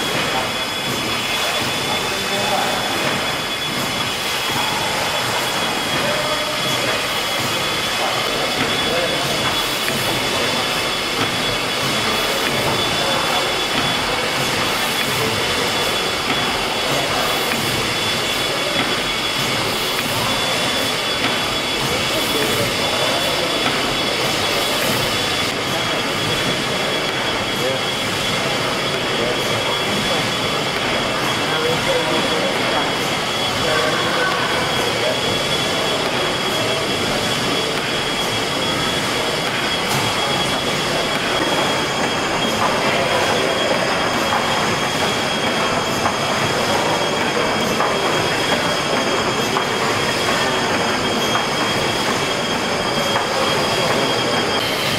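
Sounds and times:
steam engine running: 0:00.0 - 0:54.9
thin high whine: 0:00.0 - 0:54.9.

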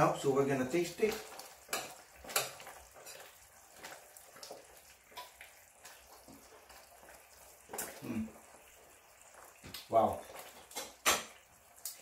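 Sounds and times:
stew simmering in a saucepan: 0:00.0 - 0:12.0
metal spoon tapping a pan: 0:01.0 - 0:03.3, 0:10.5 - 0:11.4.

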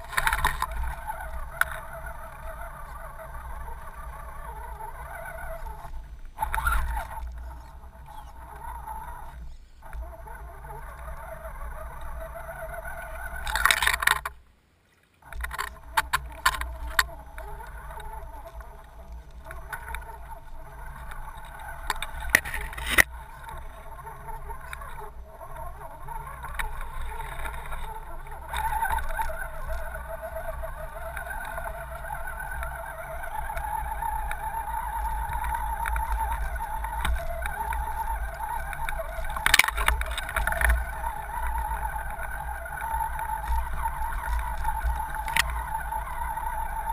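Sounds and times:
electric motor and gears whining: 0:15.3 - 0:46.9.

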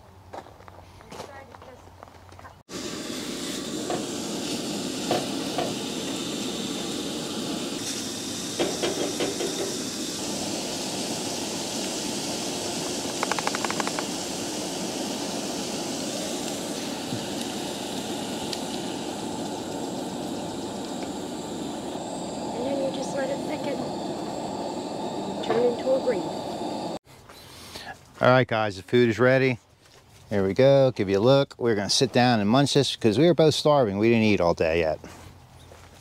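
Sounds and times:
sausage sizzling in a skillet: 0:02.7 - 0:27.0.

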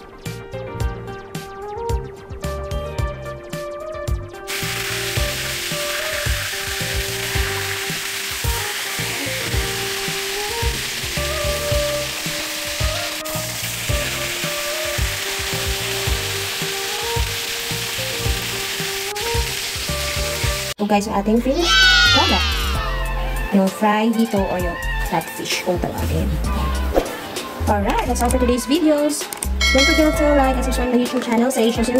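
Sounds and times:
background music with steady beat: 0:00.0 - 0:20.8, 0:22.8 - 0:31.9
fish frying in hot oil: 0:04.5 - 0:20.8.

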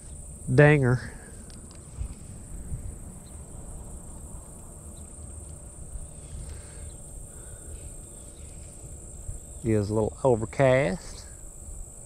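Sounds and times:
insects trilling: 0:00.0 - 0:12.0
wind rumble on microphone: 0:01.2 - 0:06.5.

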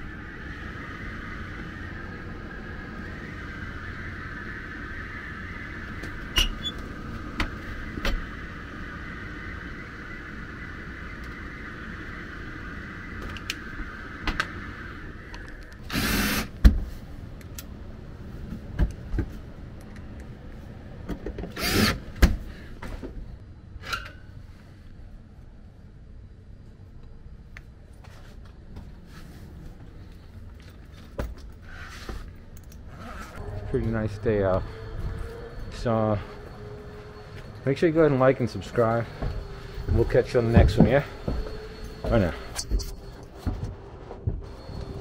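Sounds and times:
air handler humming: 0:00.0 - 0:23.6, 0:32.4 - 0:45.0.

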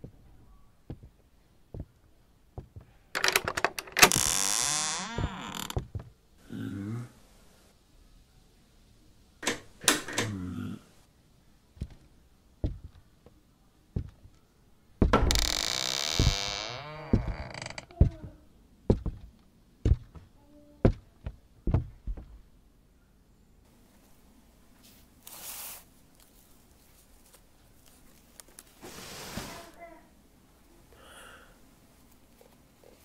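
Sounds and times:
footsteps on wooden floor: 0:00.9 - 0:02.0, 0:02.6 - 0:02.9, 0:12.6 - 0:13.0, 0:14.0 - 0:14.4, 0:15.0 - 0:22.4.

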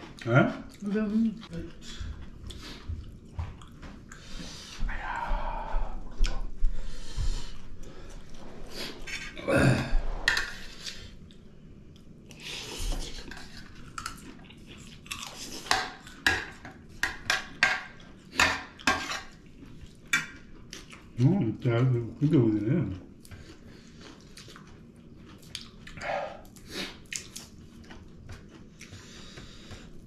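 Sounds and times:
chewing and lip-smacking: 0:00.0 - 0:04.8, 0:10.8 - 0:21.3, 0:22.8 - 0:30.0.

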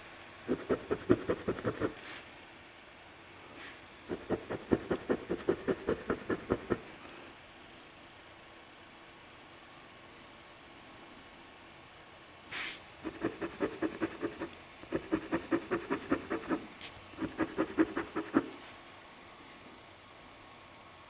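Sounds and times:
short hiss: 0:12.5 - 0:12.9
coin scratching lottery ticket: 0:13.0 - 0:16.6, 0:17.2 - 0:18.5.

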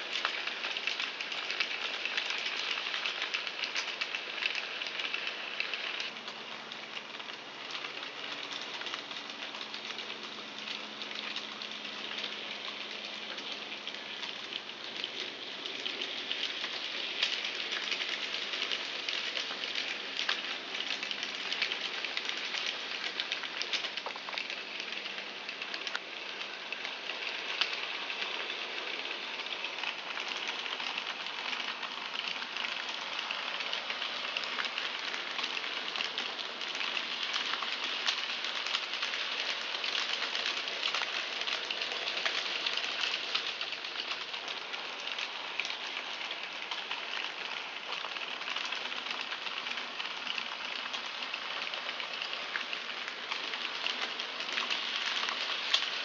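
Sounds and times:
model train rattling hiss: 0:00.0 - 0:06.1.

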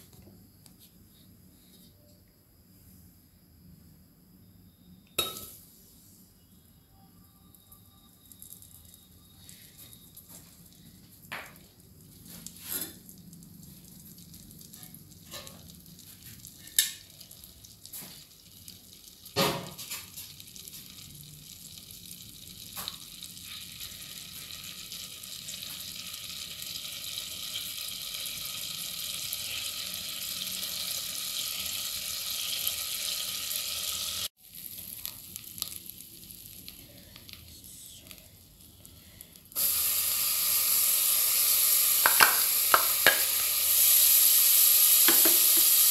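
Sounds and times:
butter sizzling in a pot: 0:07.4 - 0:45.9
butter popping: 0:42.0 - 0:43.5
vegetables dropping into hot butter: 0:42.0 - 0:43.5, 0:45.0 - 0:45.9.

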